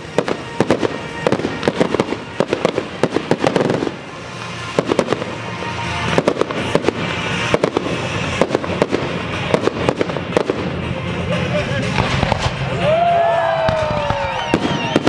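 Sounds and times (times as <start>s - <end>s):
background music: 0.0s - 15.0s
fireworks bangs and crackles: 0.0s - 15.0s.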